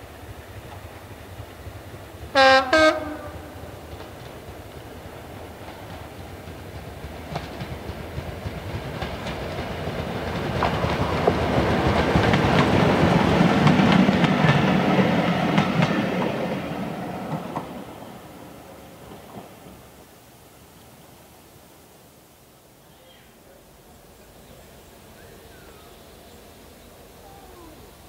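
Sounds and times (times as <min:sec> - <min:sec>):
train wheels clickety-clack: 0:00.2 - 0:02.4, 0:03.7 - 0:18.2, 0:19.0 - 0:19.8.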